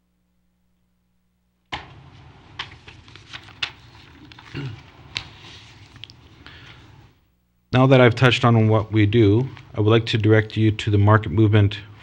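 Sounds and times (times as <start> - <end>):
rustling and handling noise: 1.7 - 7.2.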